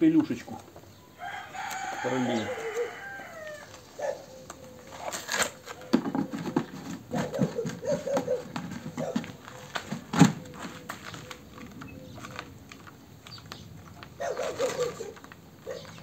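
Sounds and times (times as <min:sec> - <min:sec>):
plastic clicks rattles and knocks: 0:04.5 - 0:16.0.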